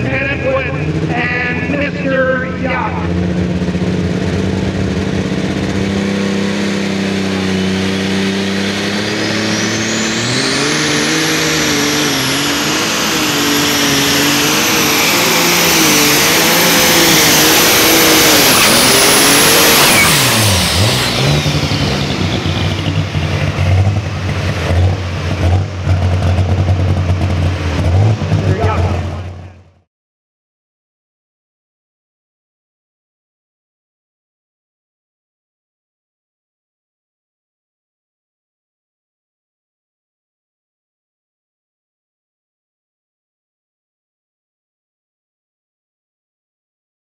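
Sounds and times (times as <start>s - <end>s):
tractor engine revving under load: 0.0s - 29.8s
turbo whistle: 17.5s - 22.2s.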